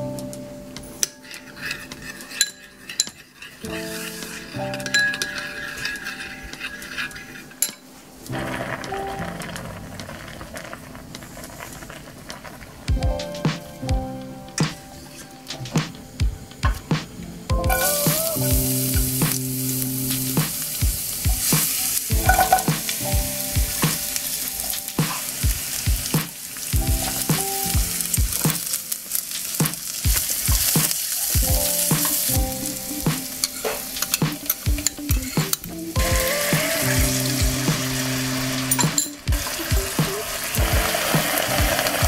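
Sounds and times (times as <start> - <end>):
spatula scraping and knocking pan: 1.0 - 9.7, 20.1 - 38.0
sauce hissing in hot pan: 3.6 - 4.6, 17.7 - 42.0
vegetables sizzling in frying pan: 17.7 - 42.0.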